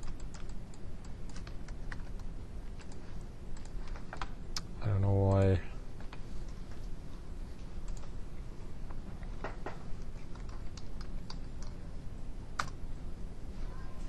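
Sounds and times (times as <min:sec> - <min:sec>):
computer keyboard key clicks: 0:00.0 - 0:04.7, 0:12.6 - 0:12.8
low steady room hum: 0:00.0 - 0:14.0.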